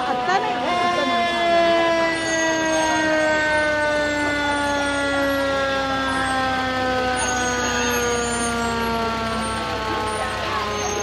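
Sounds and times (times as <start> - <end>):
fire truck siren falling tone: 0.0 - 11.0
truck engine running: 0.0 - 11.0.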